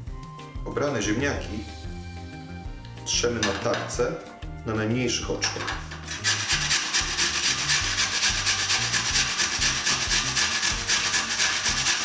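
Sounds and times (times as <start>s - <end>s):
potato scraped on metal grater: 6.0s - 12.0s.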